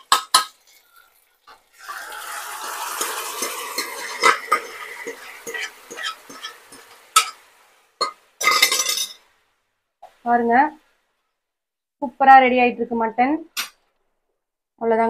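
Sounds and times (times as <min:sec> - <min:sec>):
meat sizzling in oil: 0:00.0 - 0:09.3
spoon scraping a pan: 0:00.1 - 0:09.3.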